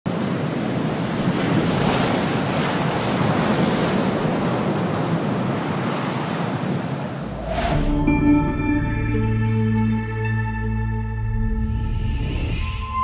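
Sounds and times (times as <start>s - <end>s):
ocean surf washing onto beach: 0.1s - 7.9s
wind: 0.1s - 13.0s.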